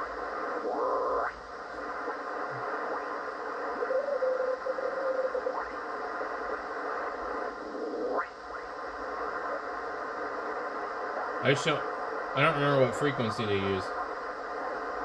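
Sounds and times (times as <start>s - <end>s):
radio receiver static hissing: 0.0s - 15.0s
steady radio whistle: 0.0s - 15.0s.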